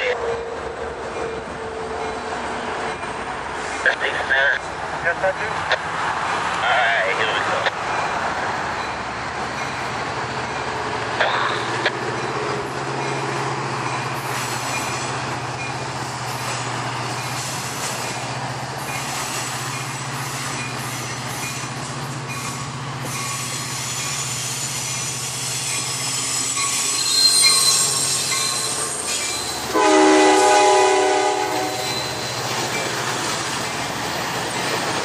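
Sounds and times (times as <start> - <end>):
diesel locomotive engine drone: 0.0 - 35.0
wheels squealing: 22.3 - 29.8, 31.6 - 35.0.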